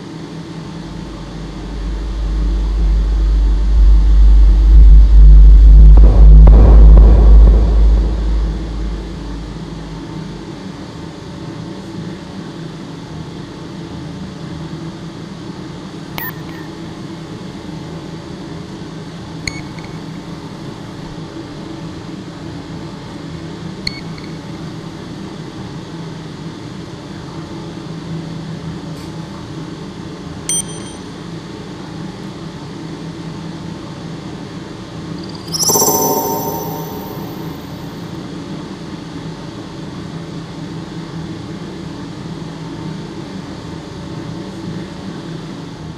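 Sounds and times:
low humming drone: 0.8s - 10.6s, 35.5s - 37.9s
short high pings: 16.2s - 16.7s, 35.5s - 37.9s.

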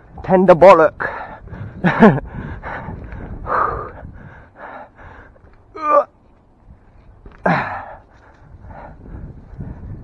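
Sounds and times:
man breathing hard: 1.0s - 5.6s, 7.3s - 10.0s
man groaning: 5.7s - 6.1s.

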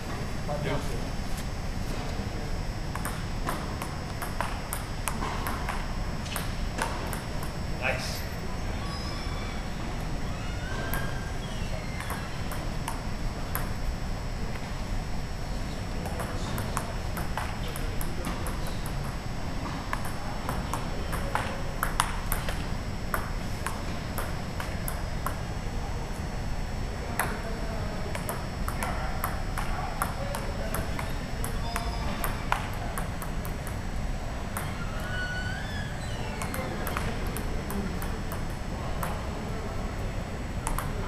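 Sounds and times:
table tennis ball ticking: 2.9s - 7.6s, 12.0s - 13.8s, 19.9s - 25.4s, 36.0s - 39.2s, 40.6s - 41.0s.

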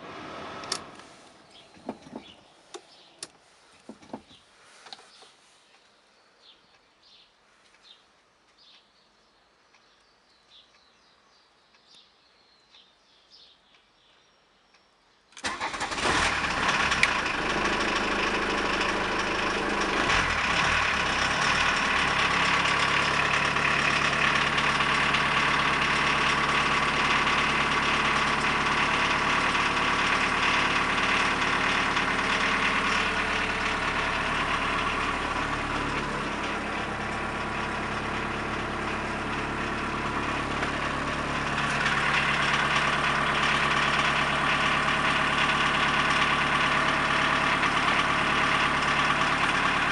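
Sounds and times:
diesel engine starting and idling: 0.0s - 3.9s, 15.4s - 49.9s.

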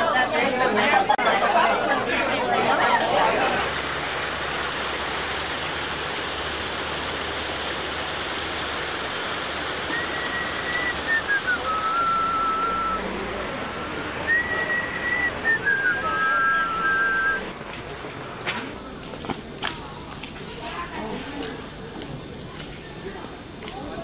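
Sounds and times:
steady rushing noise: 2.0s - 19.2s
person whistling: 9.9s - 13.0s, 14.3s - 17.5s.

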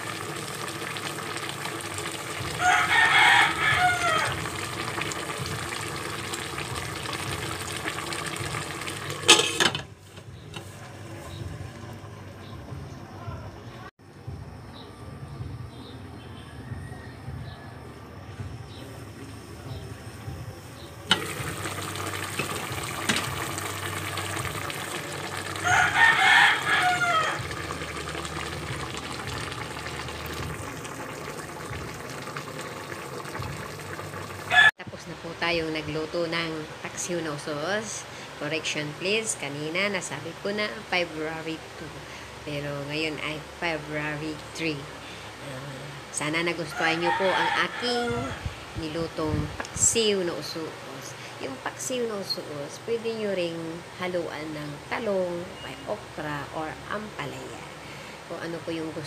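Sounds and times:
stew simmering with a hiss: 0.0s - 11.6s, 20.6s - 34.7s
stew boiling and bubbling: 0.0s - 13.2s, 18.4s - 59.0s
rooster crowing: 2.4s - 4.5s, 16.4s - 18.0s, 25.5s - 27.6s, 34.5s - 34.7s, 46.7s - 48.6s
glass pot lid clattering: 9.2s - 9.9s.

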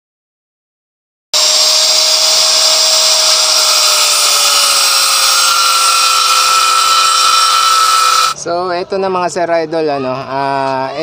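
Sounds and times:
angle grinder cutting steel: 1.4s - 8.4s.

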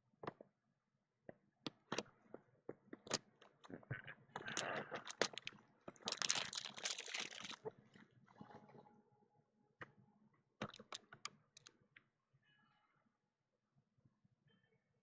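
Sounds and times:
plastic crinkling and tearing: 4.4s - 7.7s
shrink-wrap snapping and clicking: 4.5s - 5.5s, 6.1s - 7.6s.

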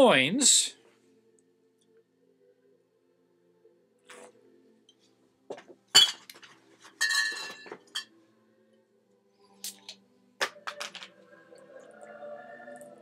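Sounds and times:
glass clinking: 5.9s - 8.1s.

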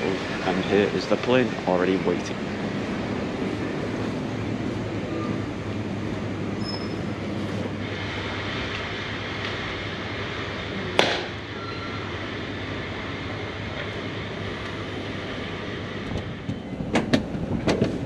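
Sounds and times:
airport terminal rumble: 0.0s - 18.0s
sharp knock: 11.0s - 11.3s.

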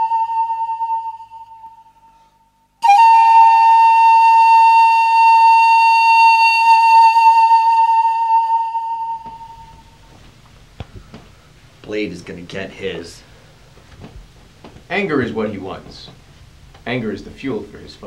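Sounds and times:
flute-like note: 0.0s - 10.1s
long held note: 0.0s - 10.2s.

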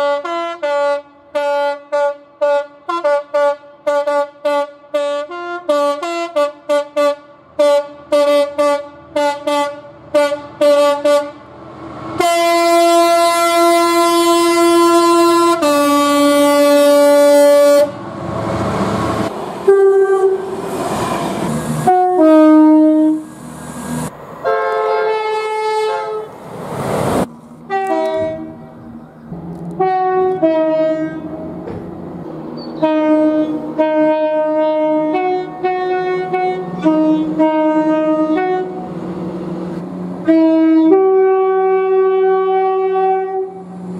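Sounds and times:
locomotive horn: 0.0s - 11.5s, 12.2s - 18.0s, 19.6s - 20.6s, 21.8s - 23.3s, 24.4s - 26.4s, 27.6s - 28.9s, 29.6s - 31.6s, 32.6s - 39.0s, 40.2s - 43.9s
two-tone train horn blasts: 0.0s - 11.5s, 12.2s - 18.0s, 19.6s - 20.6s, 21.8s - 23.3s, 24.4s - 26.3s, 27.7s - 28.8s, 29.7s - 31.6s, 32.7s - 39.0s, 40.2s - 43.9s
train passing: 5.0s - 43.9s
low engine hum: 26.3s - 43.9s.

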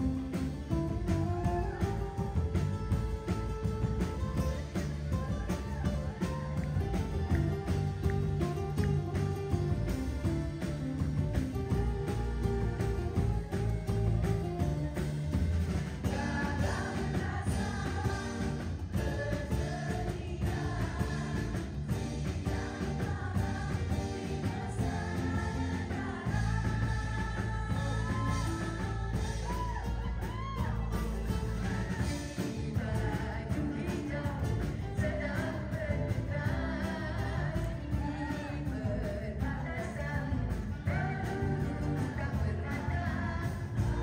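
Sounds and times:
backing music: 0.0s - 44.0s
woman singing into a microphone: 16.0s - 44.0s.

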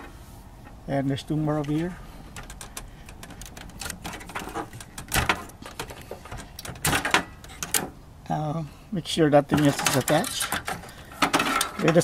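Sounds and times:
cable rattling against metal chassis: 1.6s - 7.9s, 9.5s - 12.0s.

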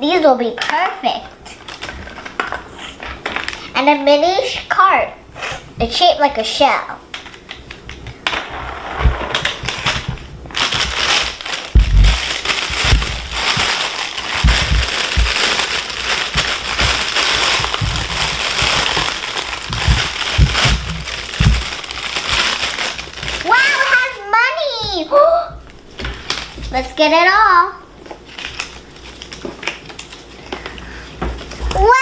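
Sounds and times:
plastic bag crinkling: 1.5s - 3.7s, 7.1s - 24.2s, 25.9s - 26.8s, 28.0s - 31.9s.

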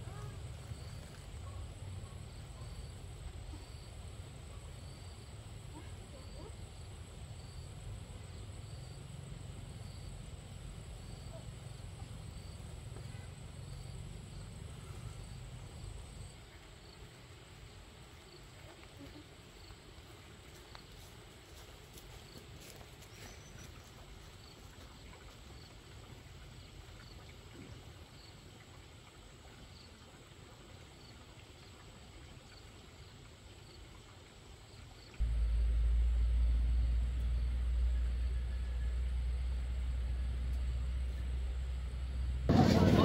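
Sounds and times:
insect chirping: 0.0s - 18.5s, 32.4s - 42.4s
high steady whine: 35.2s - 43.0s
low rumble: 35.2s - 43.0s.

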